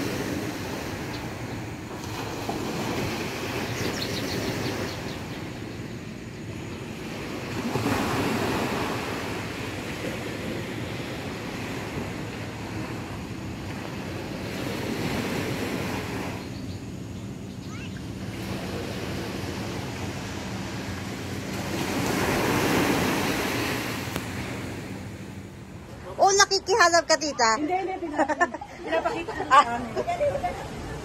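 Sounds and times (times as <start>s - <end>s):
surf breaking on beach: 6.6s - 16.4s, 17.7s - 26.4s.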